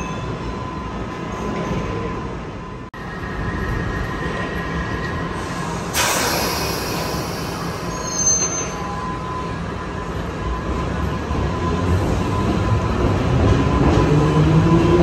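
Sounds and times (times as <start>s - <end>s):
train whine: 2.6s - 15.0s
loud hiss of air: 5.4s - 8.0s
brief high squeal: 6.0s - 9.6s.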